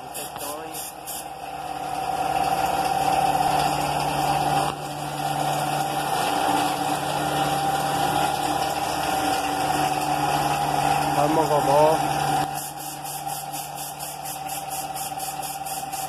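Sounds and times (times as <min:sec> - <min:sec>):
paint spray gun hissing: 0:00.0 - 0:01.4, 0:12.3 - 0:16.0
air compressor running: 0:00.0 - 0:16.0.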